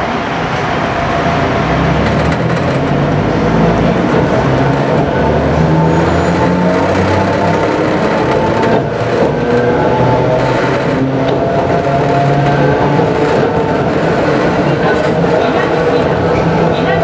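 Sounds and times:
wheels rumbling on rail: 0.0s - 17.0s.

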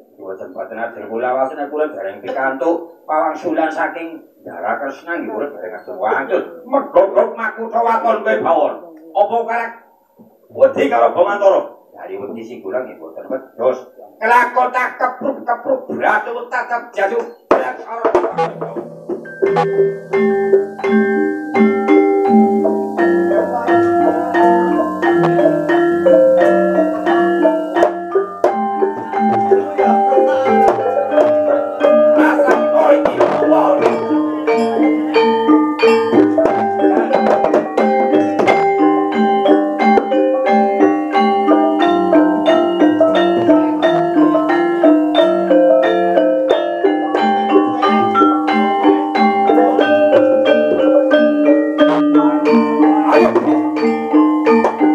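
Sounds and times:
gamelan metallophones and gongs: 0.5s - 9.5s, 18.2s - 54.9s
drum: 17.5s - 54.9s.

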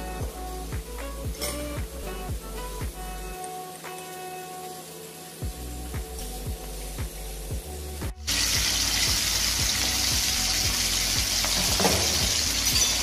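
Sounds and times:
faint music beat: 0.0s - 13.0s
steaks sizzling in frying pan: 8.3s - 13.0s.

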